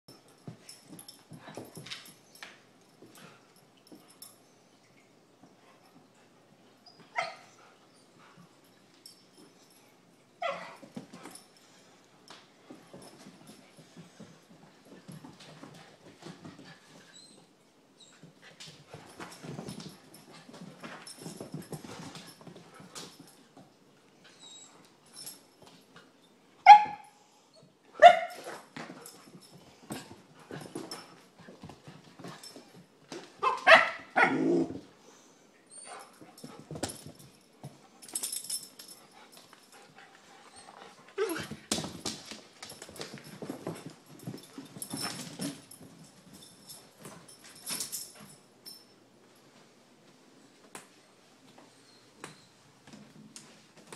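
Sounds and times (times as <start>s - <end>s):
paws clicking on floor: 0.1s - 4.4s, 10.4s - 17.4s, 18.1s - 26.1s, 28.0s - 34.9s, 35.8s - 48.8s
dog barking: 33.4s - 34.4s.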